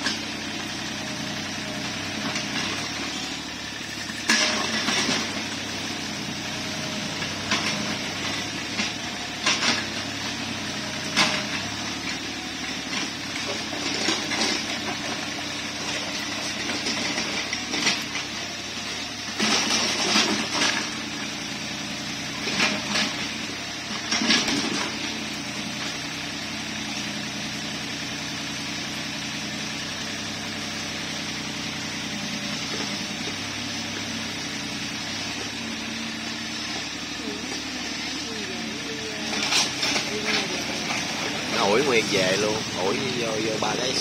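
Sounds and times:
excavator engine running: 0:00.0 - 0:44.0.

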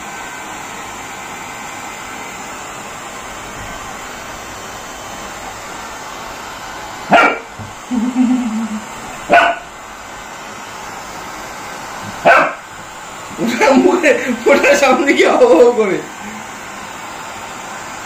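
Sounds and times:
dog barking: 0:07.1 - 0:07.5, 0:09.3 - 0:09.7, 0:12.2 - 0:12.7.

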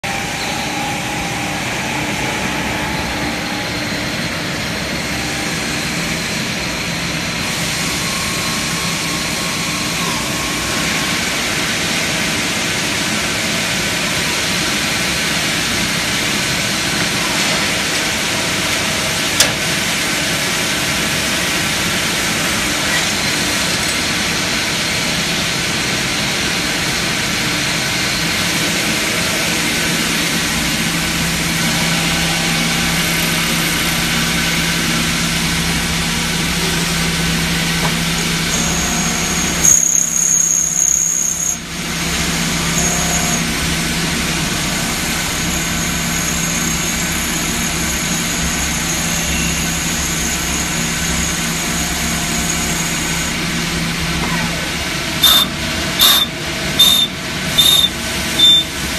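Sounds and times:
high whine: 0:00.0 - 0:12.7, 0:27.5 - 0:58.9
lathe machine drone with hiss: 0:00.0 - 0:58.9.

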